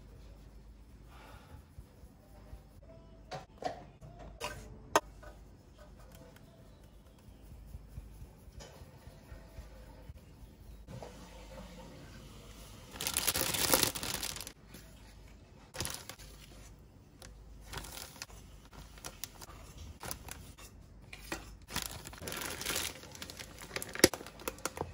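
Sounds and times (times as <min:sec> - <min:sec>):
plastic bag crinkling: 0:12.9 - 0:14.6, 0:15.8 - 0:16.5, 0:17.6 - 0:20.5, 0:21.7 - 0:24.9.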